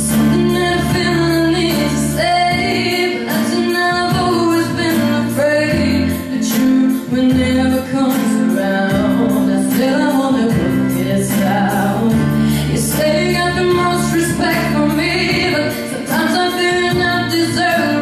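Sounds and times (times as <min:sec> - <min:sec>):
electronic keyboard chords: 0:00.0 - 0:18.0
woman singing pop ballad: 0:00.0 - 0:18.0.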